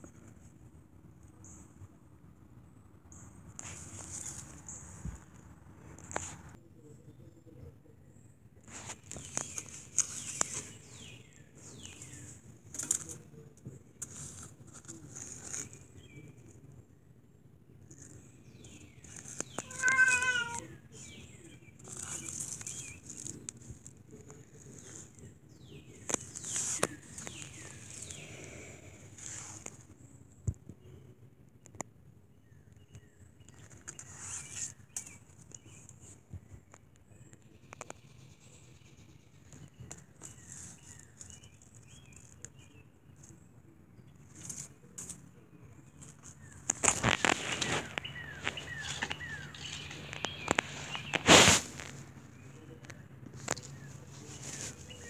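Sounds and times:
handling clicks and rustles: 8.7s - 16.6s, 17.8s - 28.2s, 44.0s - 55.0s
cat meowing: 19.6s - 20.7s
distant bird chirps: 45.5s - 55.0s.

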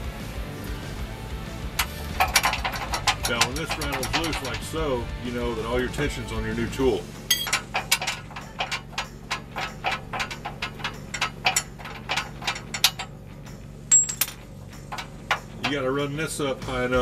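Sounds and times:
metal clicking: 1.8s - 4.8s, 7.3s - 13.2s, 13.9s - 15.8s.

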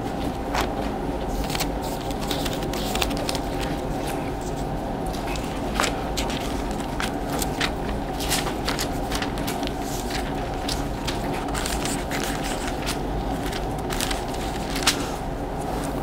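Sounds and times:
steady background hum: 0.0s - 16.0s
paper pages rustling: 0.6s - 16.0s.

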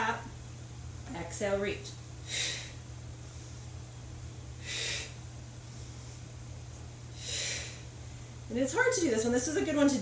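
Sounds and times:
steady low hum: 0.0s - 10.0s
woman hissing breaths: 2.3s - 2.8s, 4.6s - 5.2s, 7.2s - 7.9s.

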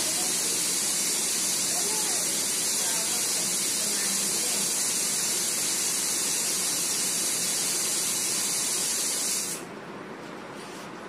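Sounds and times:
loud high-pitched hiss: 0.0s - 9.6s.

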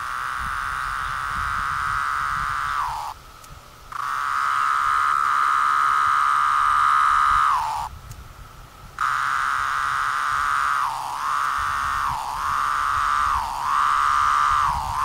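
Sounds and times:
cicada buzzing song: 0.0s - 15.0s.

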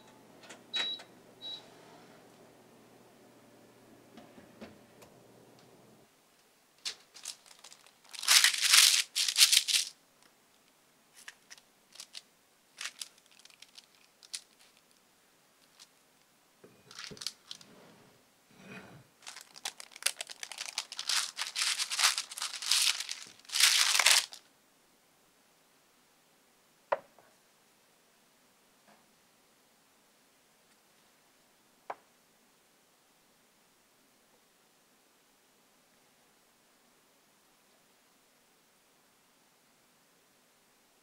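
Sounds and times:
faint low hum: 0.0s - 41.0s
parchment paper crinkling: 6.8s - 15.0s, 15.6s - 16.0s, 16.9s - 17.7s, 19.2s - 24.4s.

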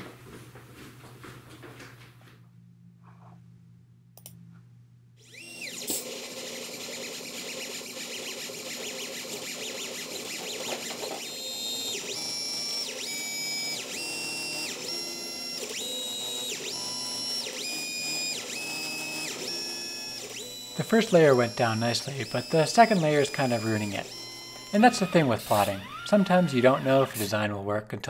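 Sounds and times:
stepper motors whining: 5.2s - 27.4s.

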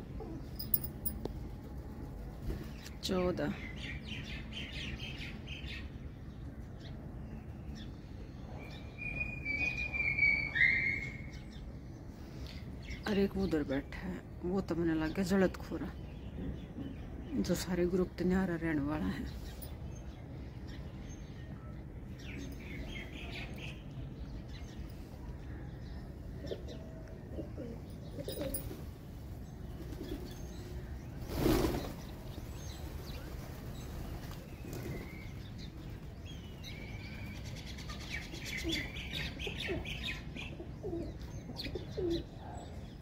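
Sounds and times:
pigeons cooing: 26.4s - 28.8s, 38.5s - 42.7s
pigeon wings flapping: 31.3s - 32.2s.

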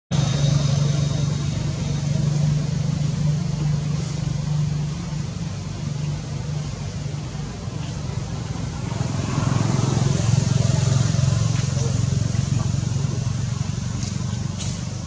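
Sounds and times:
engine humming: 0.1s - 15.0s.

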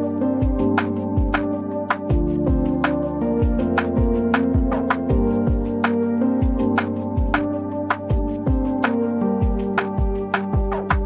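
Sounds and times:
music with sustained chords: 0.0s - 11.0s
kick drum thumps: 3.4s - 5.8s, 9.4s - 11.0s.

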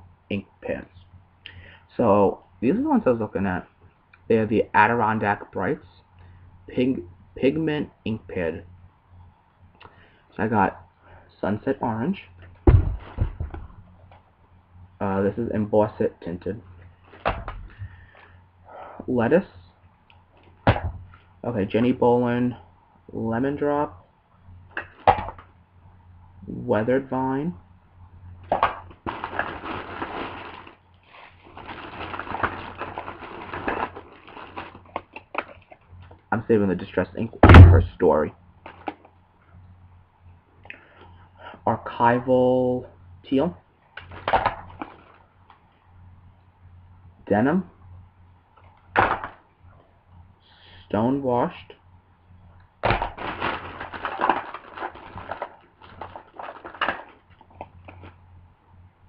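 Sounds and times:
packaging crinkling and rustling: 28.6s - 35.9s, 44.0s - 45.6s, 52.8s - 58.2s.

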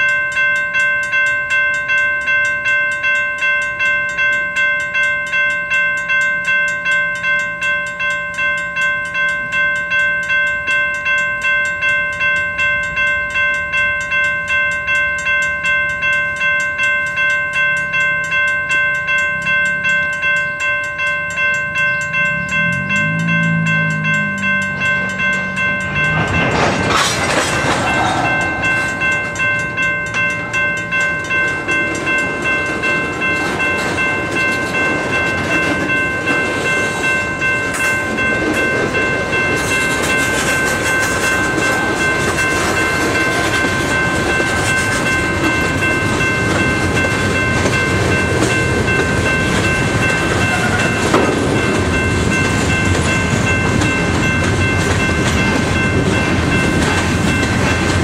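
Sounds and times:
high ringing tones: 0.0s - 58.0s
freight cars rumbling: 16.3s - 58.0s
train wheels clacking over rail joints: 22.7s - 58.0s
sharp metal clank: 26.0s - 29.0s.

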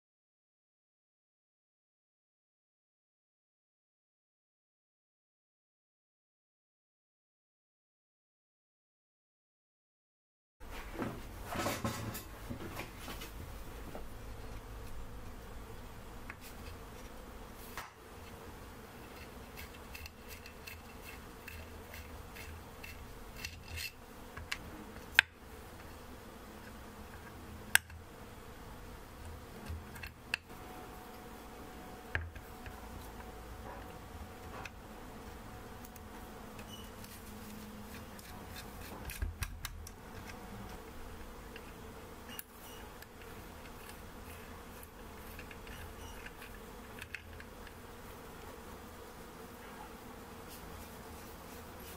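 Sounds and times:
steady low hum: 10.6s - 51.9s
small metal parts clicking: 19.1s - 24.0s.

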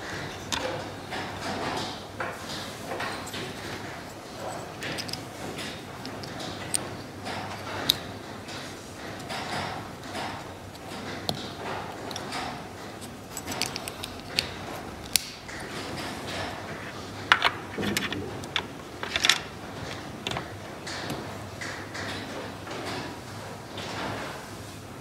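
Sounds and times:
wooden toy parts clicking: 10.2s - 15.7s, 17.3s - 22.1s.

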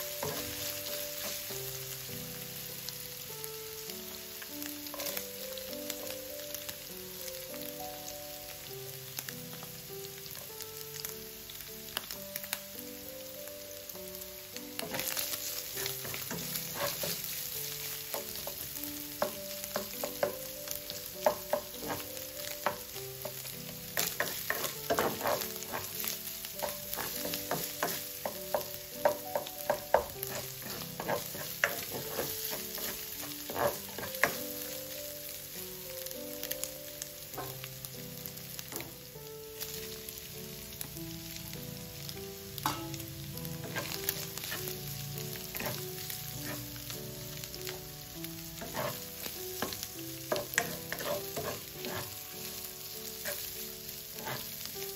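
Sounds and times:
spatula scraping and tapping pan: 0.0s - 1.5s, 4.9s - 5.3s, 14.8s - 20.5s, 21.2s - 34.7s, 43.6s - 44.8s, 45.4s - 46.8s, 48.6s - 53.6s, 54.2s - 54.9s
meat and onions sizzling in pan: 0.0s - 54.9s.

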